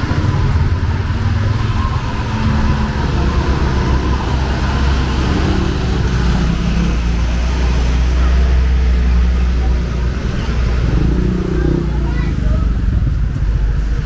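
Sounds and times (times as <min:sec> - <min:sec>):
vehicle engines rumbling: 0:00.0 - 0:14.0
faint voices: 0:07.4 - 0:14.0.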